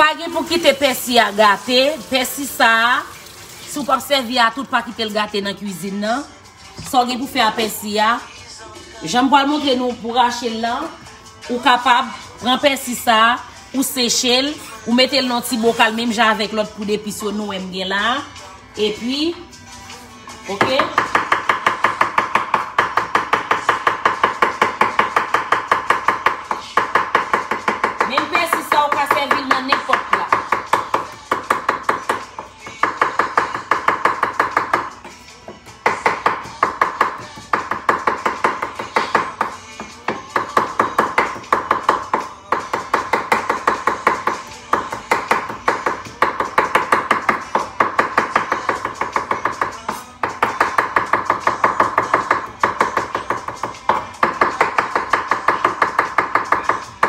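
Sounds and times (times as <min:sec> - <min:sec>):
knife chopping on cutting board: 0:20.6 - 0:57.0.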